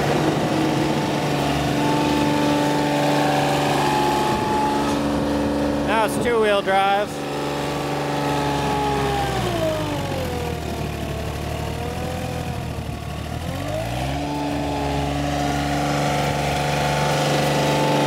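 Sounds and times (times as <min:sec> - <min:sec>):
mower diesel engine running: 0:00.0 - 0:18.0.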